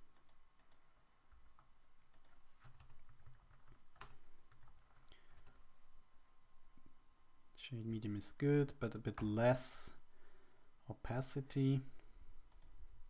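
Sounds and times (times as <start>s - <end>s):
keyboard typing: 0.1s - 5.6s.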